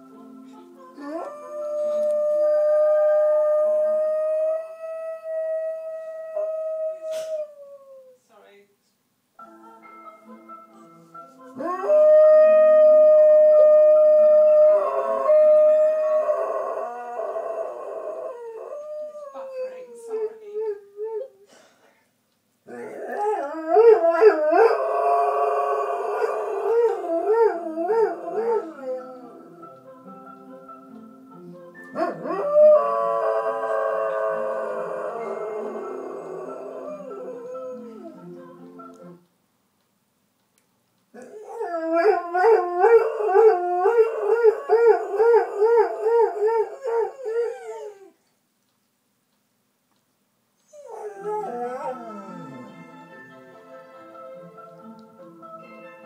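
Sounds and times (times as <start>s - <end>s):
dog howling: 32.0s - 38.1s, 50.7s - 52.7s.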